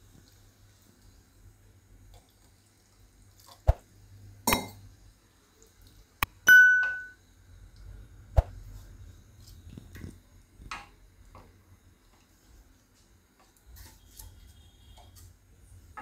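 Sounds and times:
notification bell ding: 0:06.5 - 0:07.2.

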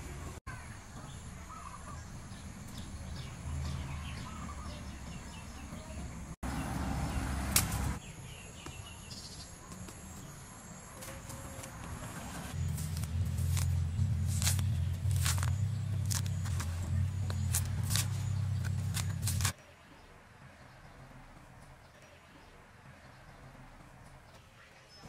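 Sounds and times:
bird chirps: 0:00.9 - 0:07.3
sharp snap: 0:07.5 - 0:08.0
low wind rumble: 0:11.8 - 0:19.5.

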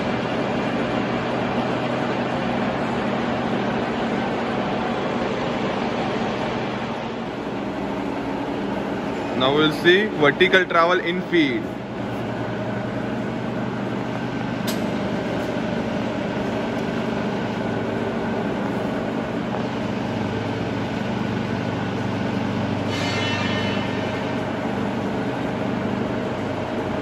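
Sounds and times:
milling machine motor drone: 0:00.0 - 0:27.0
short click: 0:14.6 - 0:14.9.

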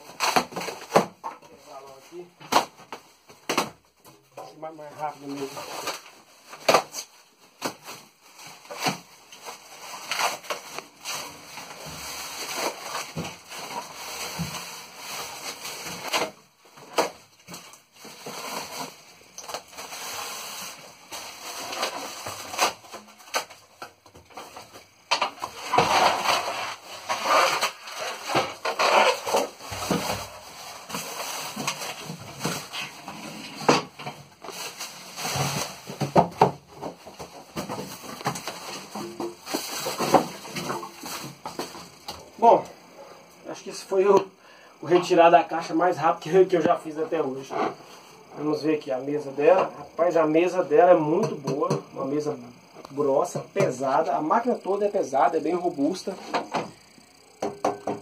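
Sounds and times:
plastic wrapping crinkling: 0:04.8 - 0:42.6.

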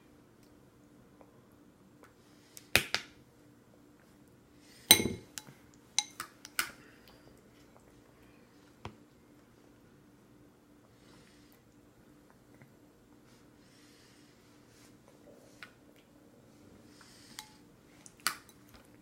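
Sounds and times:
plastic spoon tapping bowl: 0:04.9 - 0:06.6.

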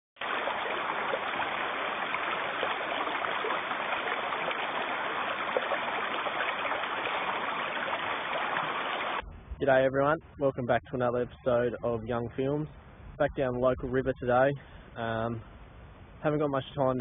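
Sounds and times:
river rushing over stones: 0:00.2 - 0:09.2
water splashes and gurgles: 0:00.2 - 0:09.2.

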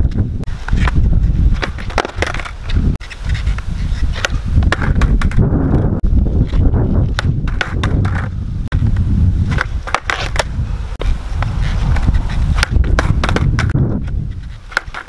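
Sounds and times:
skateboard wheels rolling on asphalt: 0:00.0 - 0:15.0
skateboard deck clacking on ground: 0:00.1 - 0:05.4, 0:06.4 - 0:08.4, 0:09.5 - 0:10.6, 0:11.4 - 0:15.0.

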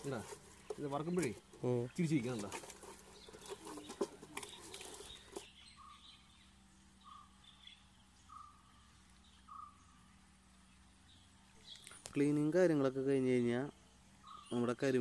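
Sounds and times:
handling clicks and knocks: 0:00.0 - 0:05.5
bird call: 0:03.1 - 0:10.0.

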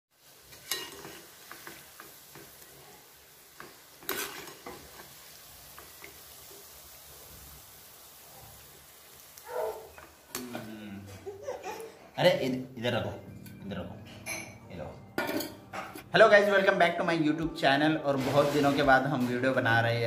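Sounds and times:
dough sizzling in hot oil: 0:00.1 - 0:11.0
metal spoon scraping pan: 0:00.5 - 0:01.7, 0:04.0 - 0:05.1, 0:15.2 - 0:16.1.

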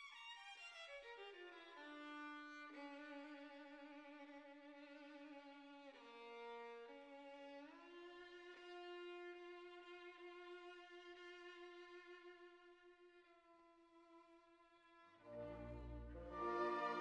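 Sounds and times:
violin playing: 0:14.2 - 0:17.0.

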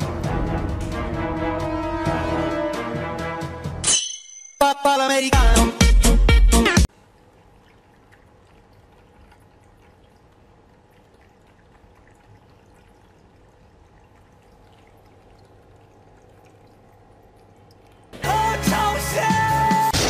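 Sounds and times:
faint pump hum: 0:06.9 - 0:18.2
water trickling: 0:06.9 - 0:19.3.

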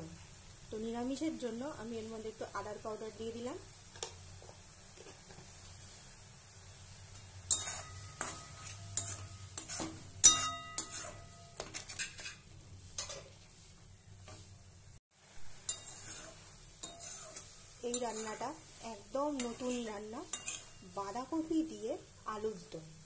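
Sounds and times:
faint frying sizzle: 0:00.0 - 0:23.0
metal spatula scraping pan: 0:07.5 - 0:14.5, 0:15.6 - 0:21.2.

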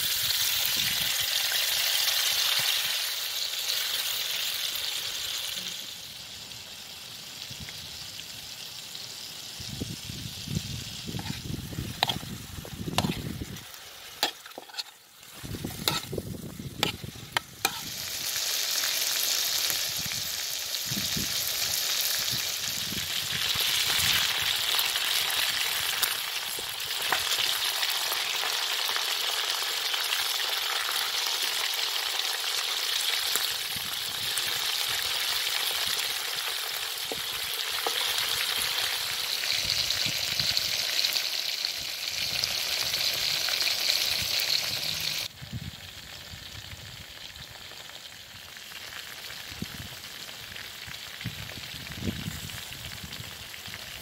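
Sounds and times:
chicken sizzling in hot oil: 0:00.0 - 0:54.0
metal spoon scraping pan: 0:11.2 - 0:12.3, 0:12.9 - 0:16.2, 0:16.8 - 0:18.0.

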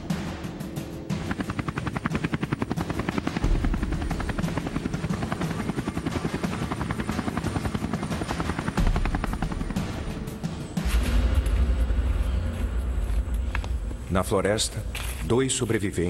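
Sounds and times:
helicopter rotor chopping: 0:00.0 - 0:10.8.

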